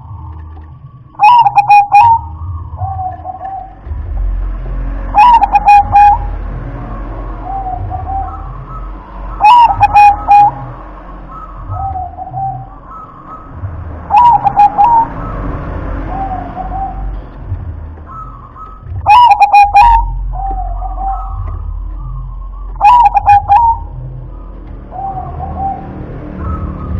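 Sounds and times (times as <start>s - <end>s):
dove cooing: 1.2s - 3.8s, 5.2s - 6.3s, 7.4s - 15.4s, 18.1s - 24.0s.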